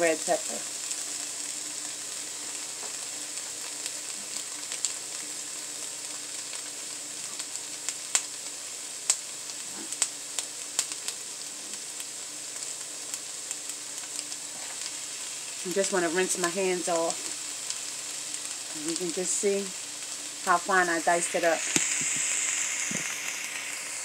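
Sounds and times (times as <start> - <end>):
vegetables sizzling in a frying pan: 0.0 - 24.0
fat spattering pops: 21.7 - 23.3.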